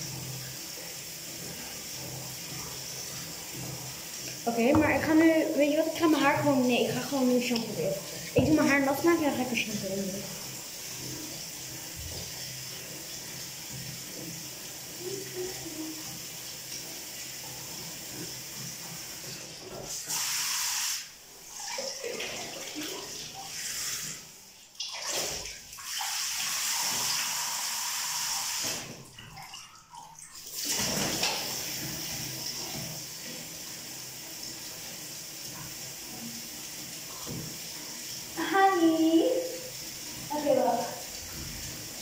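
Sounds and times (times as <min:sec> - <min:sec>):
water running into bathtub: 0:00.0 - 0:42.0
water splashing: 0:01.2 - 0:14.4, 0:21.4 - 0:27.5, 0:28.5 - 0:33.4.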